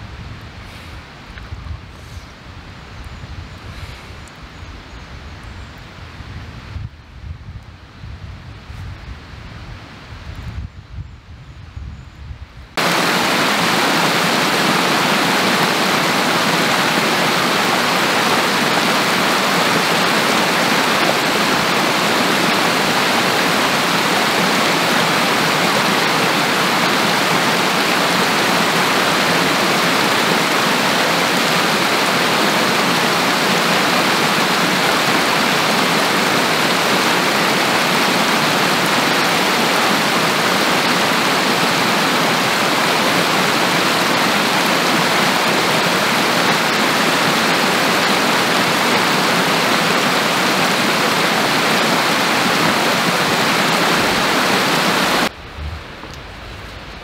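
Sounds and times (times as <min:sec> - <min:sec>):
mountain stream rushing: 0:12.8 - 0:57.0.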